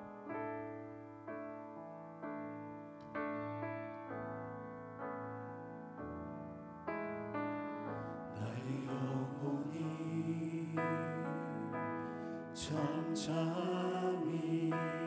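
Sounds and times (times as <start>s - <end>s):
piano chords on keyboard: 0.0s - 15.0s
man singing: 8.4s - 11.8s, 12.6s - 15.0s.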